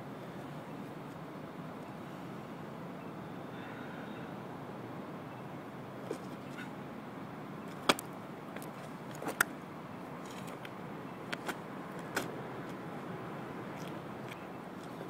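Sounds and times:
steady outdoor background hiss: 0.0 - 15.0
footsteps and stamps on asphalt: 7.6 - 9.6, 10.2 - 13.1, 13.7 - 15.0.

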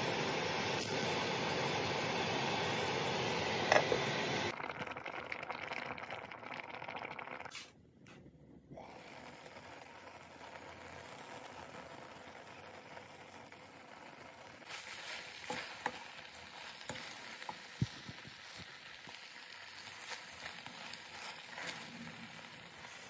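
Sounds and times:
pot simmering: 0.0 - 7.7, 8.7 - 23.0.

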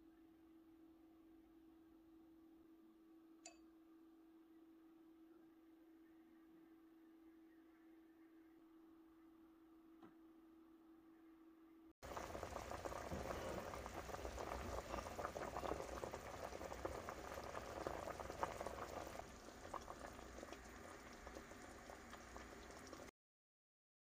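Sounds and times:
soup boiling and bubbling: 12.0 - 23.1.

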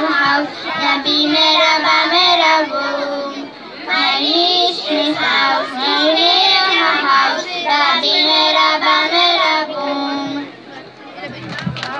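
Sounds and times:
children singing into microphones: 0.0 - 10.5.

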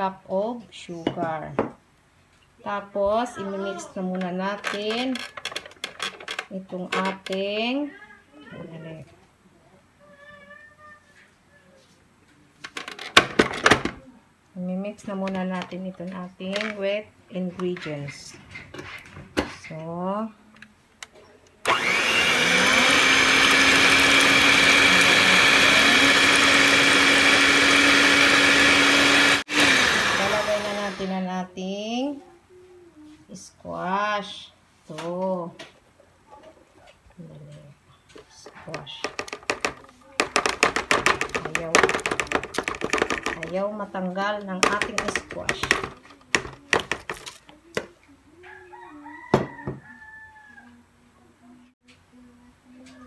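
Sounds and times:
electric hand mixer whirring: 21.6 - 31.2, 39.0 - 43.5, 44.6 - 47.0
rooster crowing: 48.4 - 50.8.

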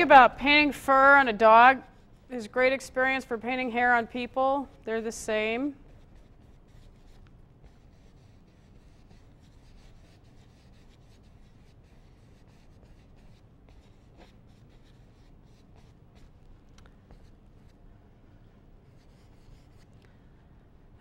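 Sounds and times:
low steady hum: 0.0 - 21.0
paintbrush strokes: 3.5 - 20.0.

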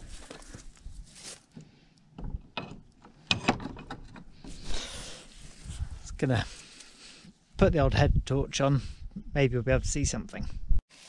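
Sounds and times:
scraping rustle: 0.0 - 1.6.

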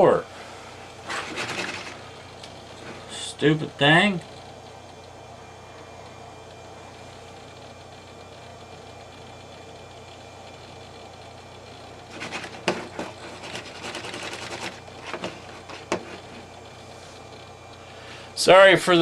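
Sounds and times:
computer hum: 0.0 - 19.0
hard drive clicking: 4.1 - 17.8.

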